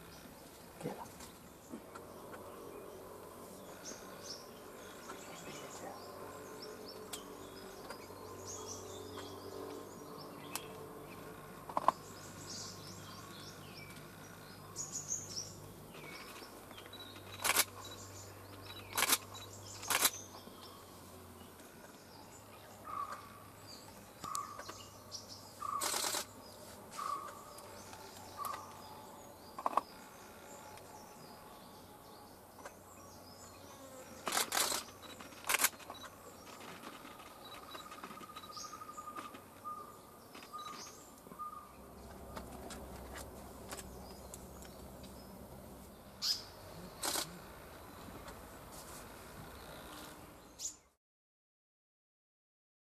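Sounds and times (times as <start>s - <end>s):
woodland birds calling: 0.0s - 48.6s
camera shutter clicks: 25.8s - 26.3s, 34.2s - 36.1s, 47.0s - 47.3s.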